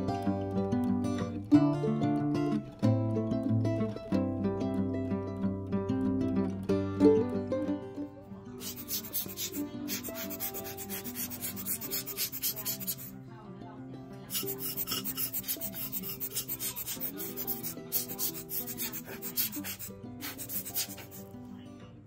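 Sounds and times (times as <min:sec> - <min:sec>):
hand tool scratching clay pot: 0:08.6 - 0:13.1, 0:14.3 - 0:21.3.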